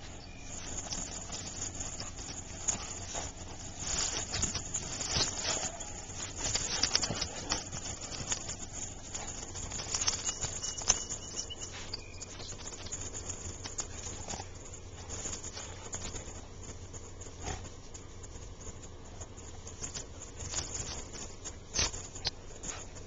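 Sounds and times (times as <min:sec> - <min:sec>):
paws scuffling on wood chips: 0:00.0 - 0:16.8.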